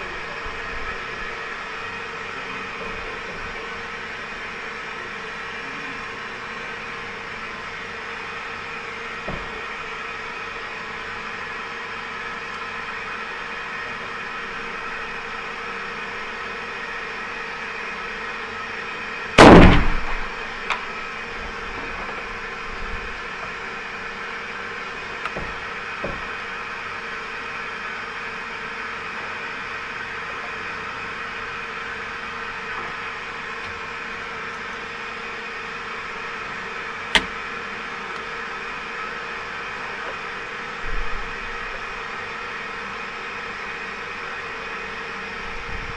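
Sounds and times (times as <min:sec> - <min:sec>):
rifle shot: 0:19.4 - 0:20.3.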